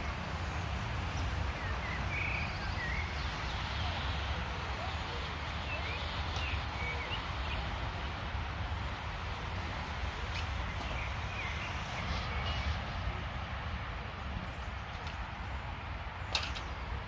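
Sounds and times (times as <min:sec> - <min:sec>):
small birds chirping: 0:00.0 - 0:08.3, 0:09.8 - 0:12.8
steady rain falling: 0:00.0 - 0:17.0.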